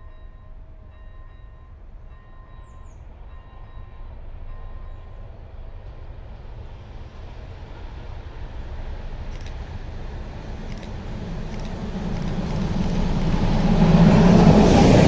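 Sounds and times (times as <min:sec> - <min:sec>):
faint pulsing ringing tone: 0:00.0 - 0:05.2
locomotive engine rumble: 0:00.0 - 0:15.0.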